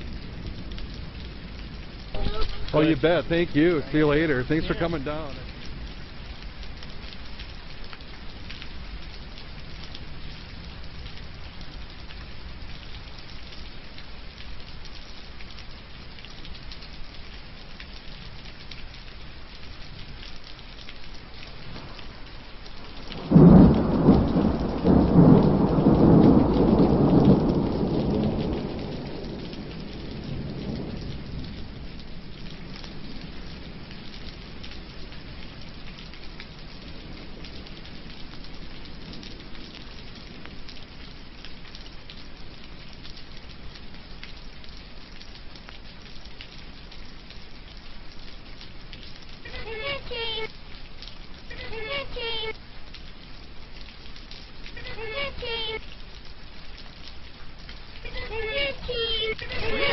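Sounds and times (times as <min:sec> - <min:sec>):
steady rain: 0:00.0 - 0:59.9
thunder clap and rumble: 0:23.2 - 0:33.9.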